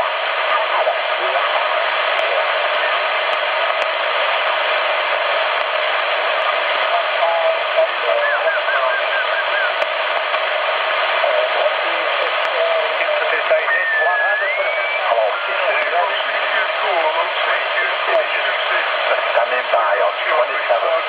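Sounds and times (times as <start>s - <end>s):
radio static hiss: 0.0s - 21.0s
warbling radio voices: 6.4s - 21.0s.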